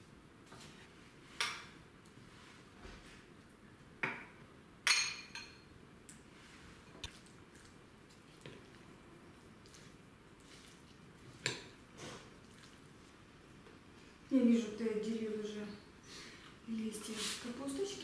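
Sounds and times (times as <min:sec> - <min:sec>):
spoon clinking against bowls: 0:04.9 - 0:05.7.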